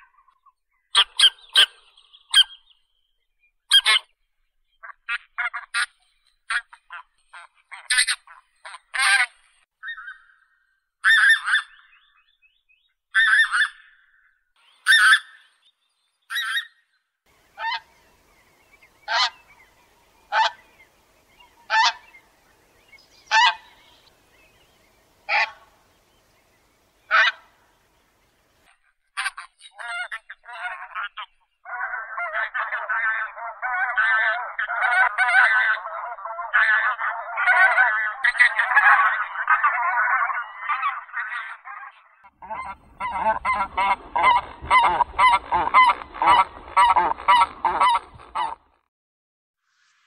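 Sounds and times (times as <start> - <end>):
goose honking: 6.5 - 9.4, 17.5 - 20.8, 21.4 - 22.2, 23.2 - 24.1, 25.3 - 25.8, 27.0 - 27.6, 29.2 - 41.6, 42.4 - 48.6
flock of geese calling: 17.4 - 24.6, 25.2 - 25.8, 27.0 - 27.6, 29.2 - 48.6.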